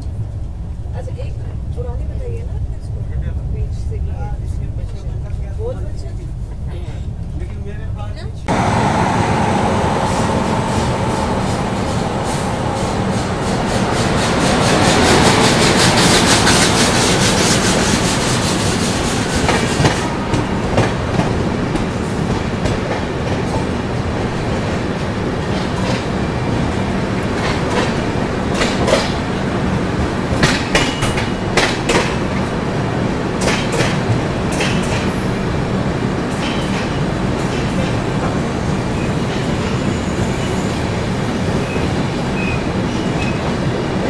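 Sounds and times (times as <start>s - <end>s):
train wheels rumbling on rails: 0.0s - 44.0s
hissing rush: 8.5s - 20.8s
wheels clacking over rail joints: 24.7s - 32.6s.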